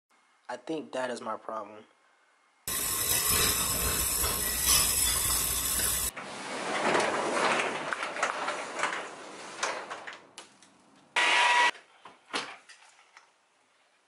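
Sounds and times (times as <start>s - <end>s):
hand tools scraping and rattling: 2.7s - 6.1s.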